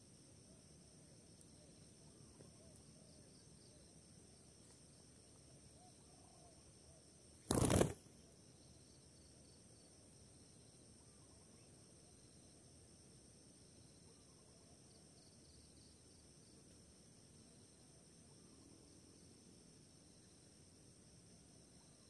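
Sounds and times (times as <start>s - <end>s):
faint high insect drone: 0.0s - 22.0s
dove wings clattering: 7.5s - 8.0s.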